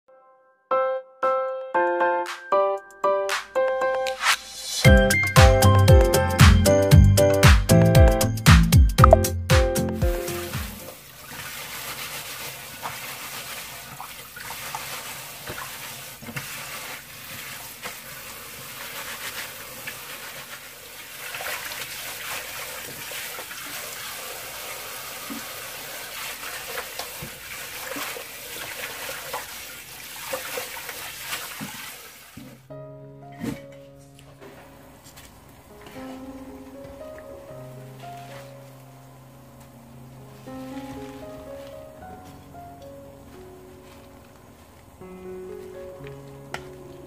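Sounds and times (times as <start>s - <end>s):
hands swishing chives in water: 10.2s - 23.8s, 26.1s - 32.5s, 38.0s - 38.8s, 40.3s - 42.1s.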